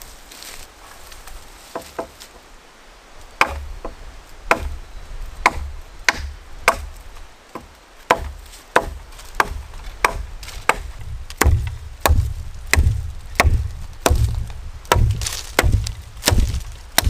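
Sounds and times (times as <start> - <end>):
machete chopping a branch: 3.4 - 3.7, 4.5 - 4.8, 5.4 - 7.0, 7.6 - 17.0.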